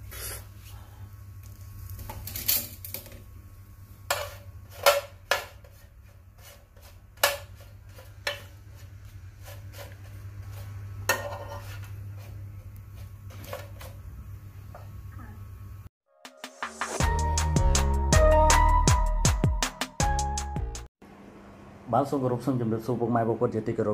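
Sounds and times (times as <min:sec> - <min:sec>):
metal spoon scraping frying pan: 0:04.1 - 0:12.4.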